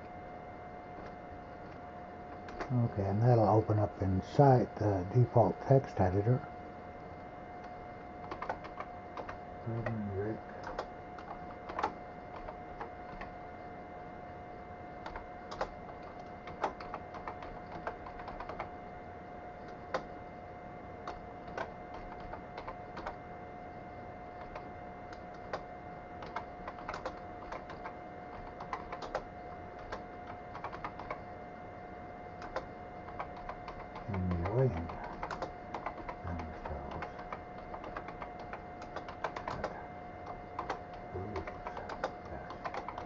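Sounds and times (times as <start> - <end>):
faint steady whine: 0.0 - 43.0
keyboard key clicks: 8.2 - 10.0, 26.2 - 31.2, 32.4 - 43.0.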